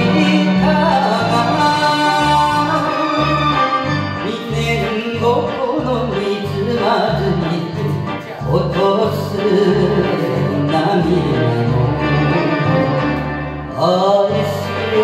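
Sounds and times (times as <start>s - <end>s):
karaoke backing track: 0.0s - 15.0s
man singing into microphone: 0.0s - 15.0s.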